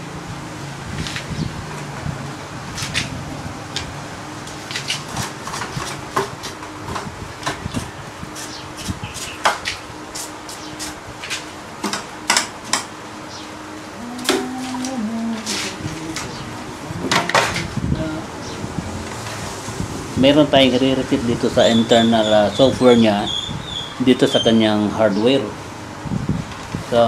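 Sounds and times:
electric fan humming: 0.0 - 27.0.

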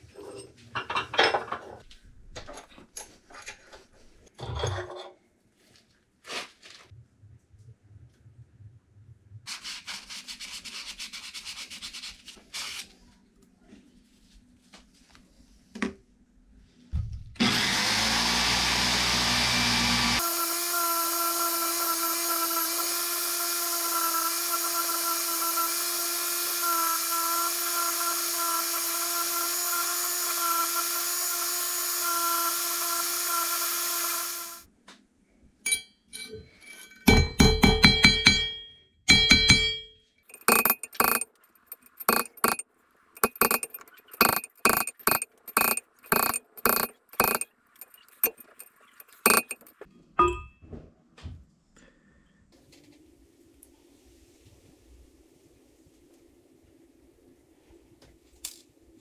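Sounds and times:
electric power tool whining: 17.4 - 34.7, 40.3 - 42.6, 43.2 - 49.7.

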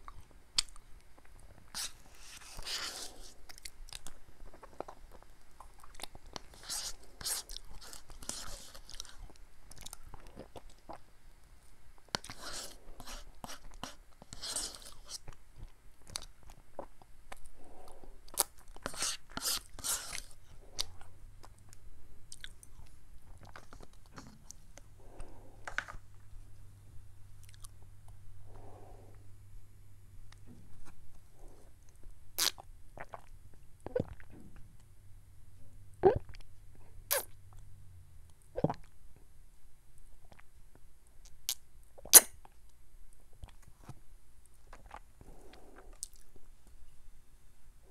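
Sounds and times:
wet mouth sounds and chewing: 0.0 - 11.1, 12.1 - 26.3, 27.4 - 28.2, 30.3 - 34.8, 40.2 - 40.6, 44.5 - 46.4
gulping and swallowing: 33.0 - 34.4, 36.0 - 36.4.

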